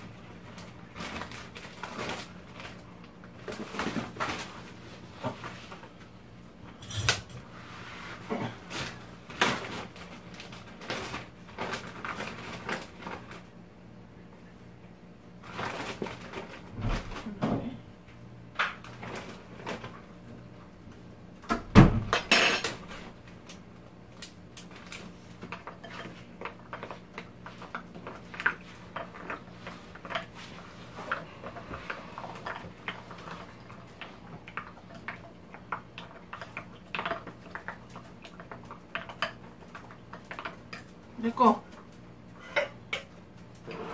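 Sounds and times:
utensils clinking against bowls: 22.1s - 22.8s, 25.5s - 26.9s.

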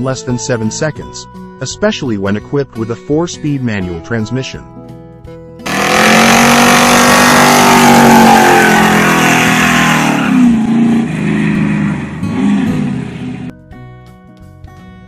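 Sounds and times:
car engine revving: 5.6s - 13.5s.

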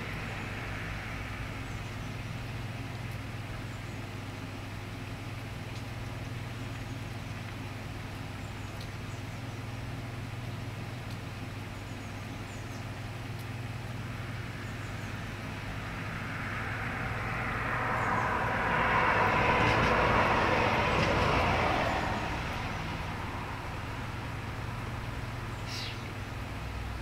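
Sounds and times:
vehicle passing by: 0.0s - 3.3s, 13.8s - 25.5s
steady low hum: 0.0s - 27.0s.

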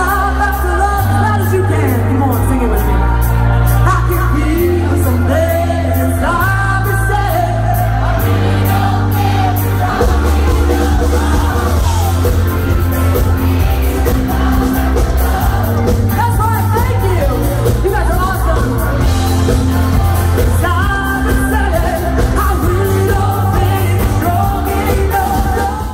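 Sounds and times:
heavy bass notes: 0.0s - 25.9s
live pop-rock band: 0.0s - 25.9s
steady drum beat: 3.7s - 25.9s
women singing: 4.1s - 12.2s, 20.4s - 25.9s.

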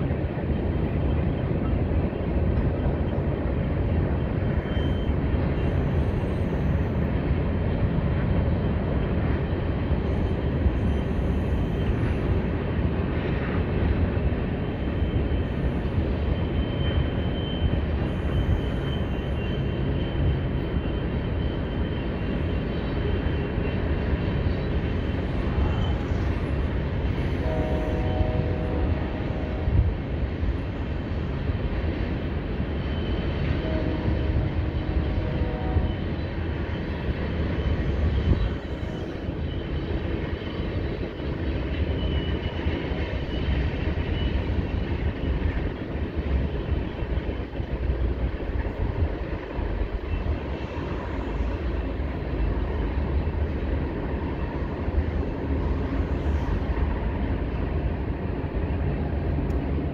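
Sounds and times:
train wheels rumbling on track: 0.0s - 59.9s
high wheel squeal: 4.4s - 7.0s, 14.7s - 23.8s, 24.4s - 30.1s.

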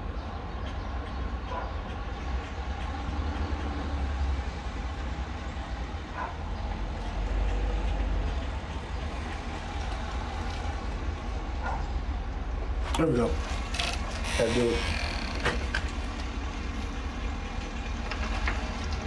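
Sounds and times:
low background rumble: 4.9s - 19.0s.

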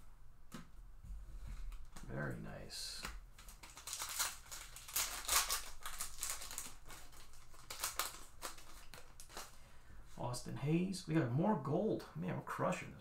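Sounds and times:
foil wrapper crinkling: 3.3s - 9.6s.

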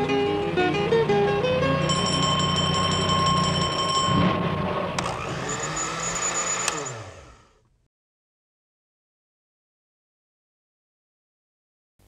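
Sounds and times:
engine hum winding down: 0.0s - 7.7s
high ringing note: 1.6s - 7.2s
sharp click: 6.6s - 6.8s.

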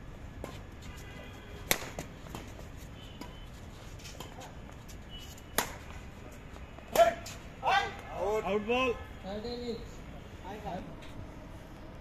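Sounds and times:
racket striking shuttlecock: 1.6s - 2.6s, 5.5s - 6.0s.

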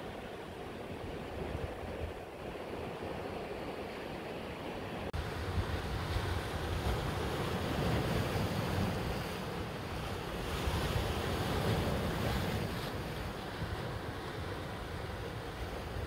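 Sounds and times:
wind buffeting microphone: 5.1s - 16.0s.

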